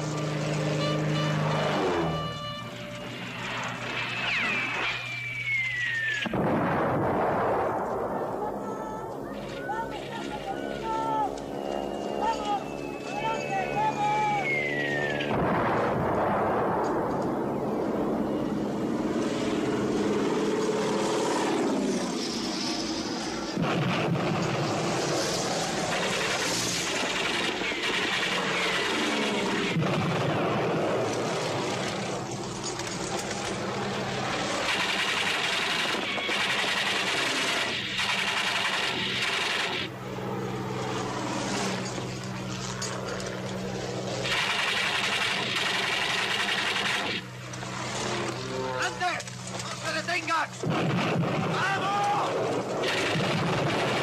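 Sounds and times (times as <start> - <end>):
propeller plane engines droning past: 0.0 - 54.0
explosions: 3.4 - 8.3, 15.2 - 17.2, 23.4 - 31.6, 50.6 - 54.0
gunfire: 34.6 - 39.9, 44.2 - 47.2, 50.6 - 52.1, 52.8 - 54.0.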